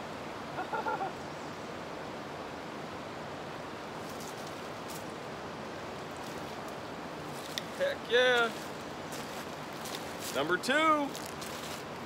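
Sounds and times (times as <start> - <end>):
river rapids rushing: 2.6 - 12.0.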